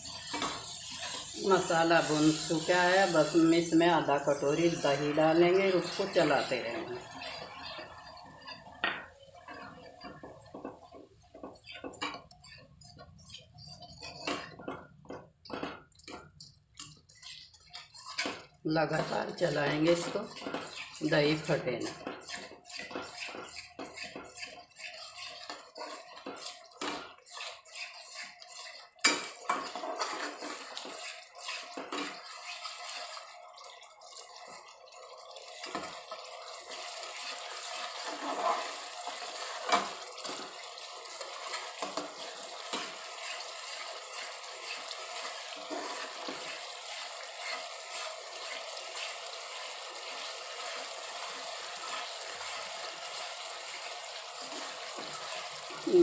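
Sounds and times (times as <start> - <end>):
metal skimmer scraping a pot: 4.4 - 34.3, 37.1 - 48.6.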